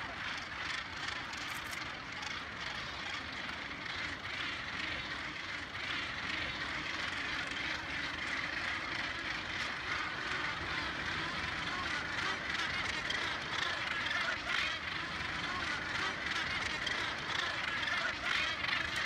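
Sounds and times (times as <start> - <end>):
gannet colony calling: 0.0 - 19.0.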